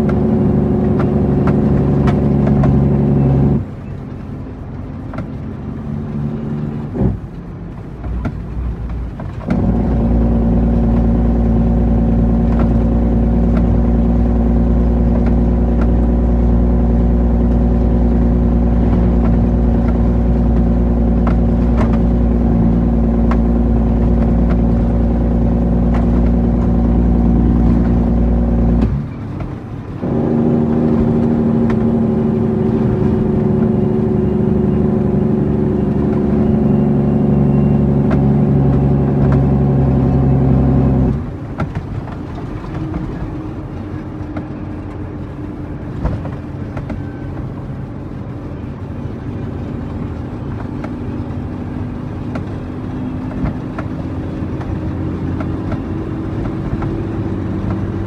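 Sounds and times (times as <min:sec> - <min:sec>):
truck diesel engine under load: 0:00.0 - 0:58.0.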